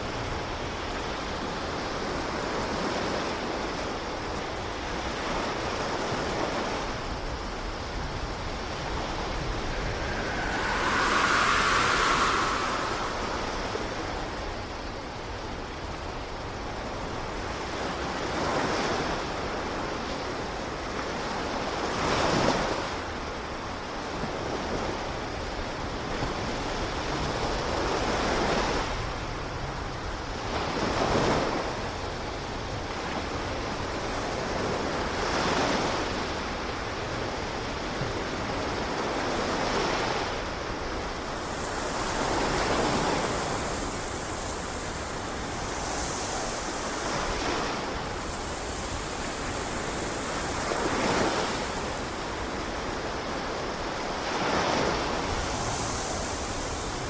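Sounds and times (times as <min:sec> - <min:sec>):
ocean waves breaking: 0:02.8 - 0:16.0, 0:38.8 - 0:57.0.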